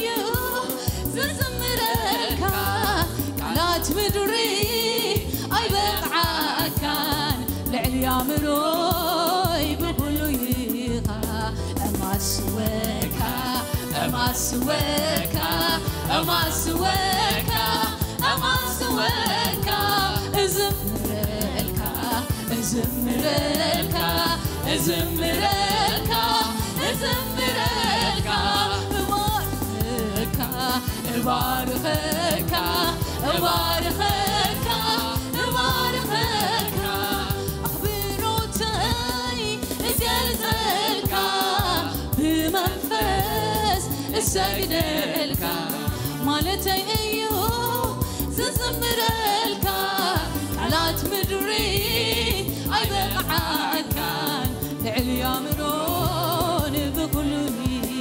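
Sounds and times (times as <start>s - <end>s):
musical accompaniment: 0.0s - 58.0s
woman singing lead: 0.0s - 58.0s
choir singing: 13.0s - 46.4s, 48.5s - 54.6s.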